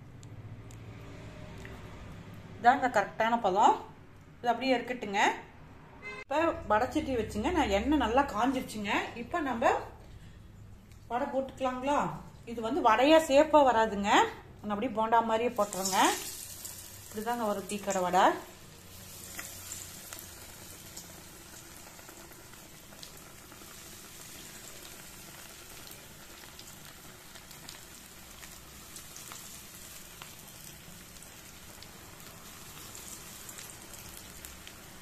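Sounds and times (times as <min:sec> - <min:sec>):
batter deep-frying in oil: 0:06.8 - 0:35.0
oil popping: 0:15.6 - 0:34.8.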